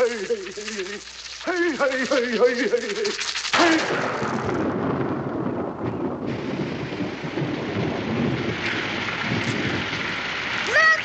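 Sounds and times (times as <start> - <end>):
heavy rain hiss: 0.0 - 4.7, 6.3 - 11.0
thunderclap and rumbling thunder: 3.6 - 11.0.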